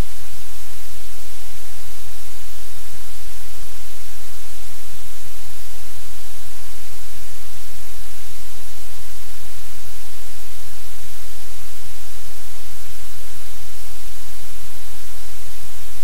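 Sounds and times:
static hiss: 0.0s - 16.0s.

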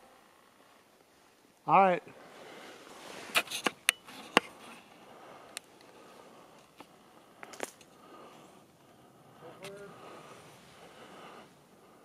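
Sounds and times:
twigs cracking: 6.6s - 8.1s.

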